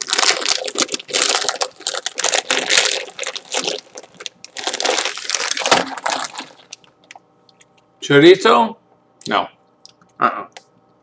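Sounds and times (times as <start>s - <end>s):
chip bag crinkling: 0.0s - 7.2s.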